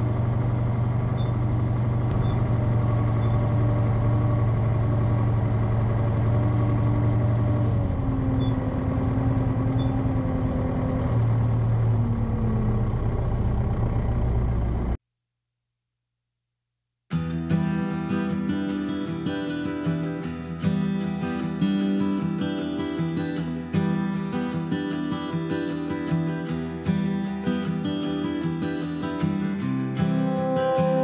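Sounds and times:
tractor diesel engine idling: 0.0s - 15.0s.

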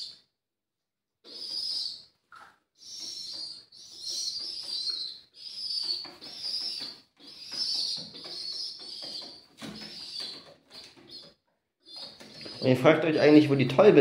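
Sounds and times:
young pigeons squealing: 1.3s - 2.0s, 2.8s - 13.4s
wings flapping: 5.7s - 11.3s.

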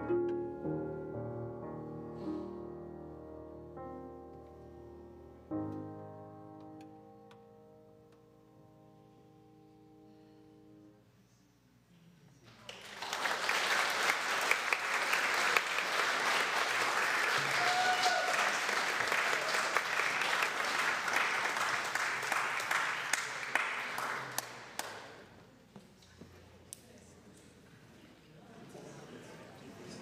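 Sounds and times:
crowd applauding: 12.6s - 25.3s.

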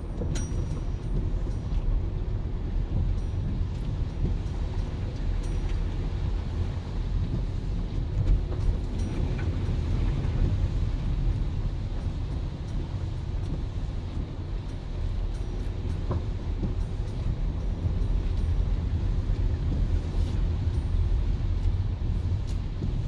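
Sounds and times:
car engine and tyres on wet road: 0.0s - 23.0s.

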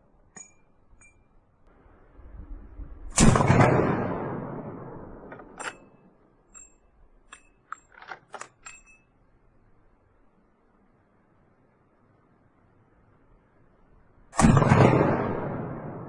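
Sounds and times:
rifle shot with echo: 3.1s - 6.1s, 14.3s - 16.0s
rifle lever metallic clicks: 5.2s - 9.1s.

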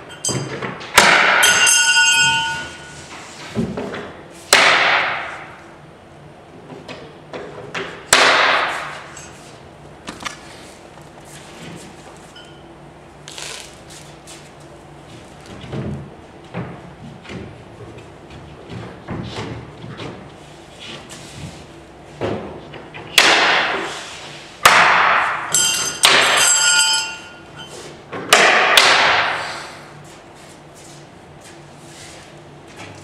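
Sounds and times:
metallic ring: 0.1s - 0.6s, 1.4s - 3.1s, 25.5s - 27.8s
loud sharp knocks on wood: 0.9s - 1.5s, 4.5s - 5.4s, 8.1s - 9.0s, 23.2s - 23.8s, 24.6s - 25.4s, 28.2s - 29.4s.

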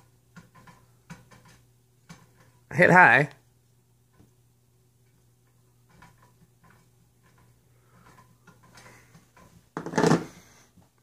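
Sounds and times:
ceiling fan clattering clunk: 0.0s - 2.6s, 5.1s - 10.5s.

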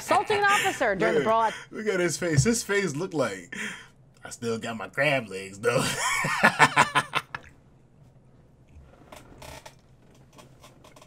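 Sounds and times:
man laughing hard: 5.7s - 7.4s.

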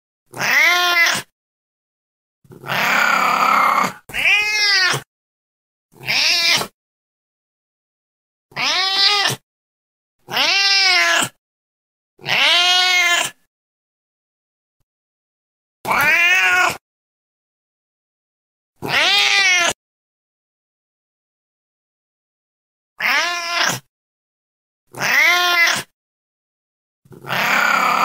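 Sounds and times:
cat meowing: 0.3s - 1.3s, 2.6s - 5.1s, 6.0s - 6.7s, 8.5s - 9.4s, 10.3s - 11.4s, 12.2s - 13.4s, 15.9s - 16.8s, 18.8s - 19.8s, 23.0s - 23.9s, 24.9s - 25.9s, 27.2s - 28.0s.

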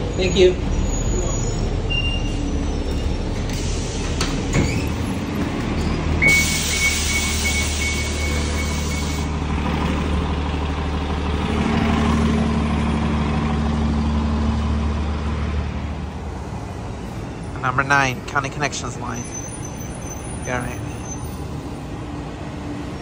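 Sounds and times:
bus diesel engine humming: 0.0s - 23.0s
air brake hiss: 6.2s - 9.3s.

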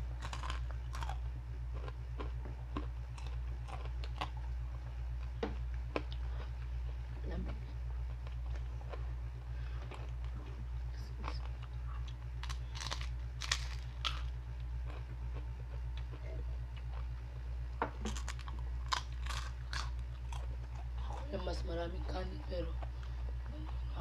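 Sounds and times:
crunching pork rinds: 0.0s - 7.1s, 8.0s - 17.2s, 18.0s - 21.6s
steady low hum: 0.0s - 24.0s.

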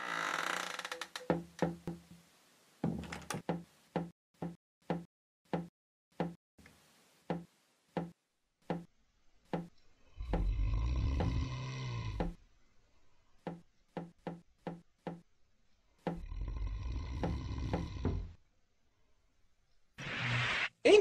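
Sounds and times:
hollow wooden knocks: 1.1s - 2.2s, 2.8s - 6.4s, 7.3s - 8.9s, 9.5s - 9.7s, 10.3s - 11.5s, 12.2s - 12.4s, 13.4s - 15.2s, 17.1s - 18.4s.

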